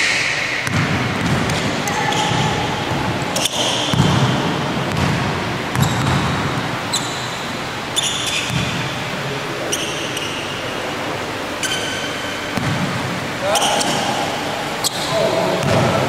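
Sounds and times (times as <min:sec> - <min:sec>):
basketball bouncing on hardwood: 0:00.6 - 0:03.1, 0:03.9 - 0:06.4, 0:08.5 - 0:08.8, 0:12.6 - 0:12.9
sneaker squeaks: 0:01.2 - 0:05.1, 0:05.7 - 0:10.8, 0:11.5 - 0:12.8, 0:13.4 - 0:15.8.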